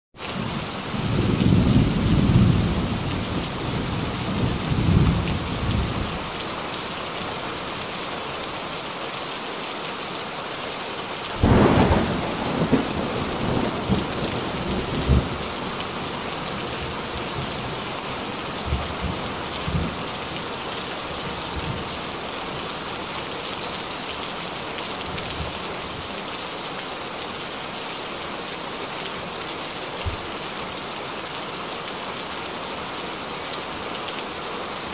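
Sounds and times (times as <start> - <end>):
heavy rain: 0.2 - 34.9
loud thunderclap: 11.4 - 15.4
thunder rumbling: 11.4 - 17.8.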